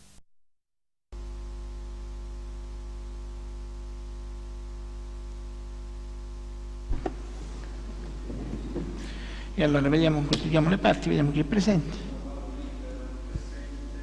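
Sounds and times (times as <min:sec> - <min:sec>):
low electrical mains hum: 0:01.2 - 0:14.0
static crackle: 0:06.6 - 0:10.8.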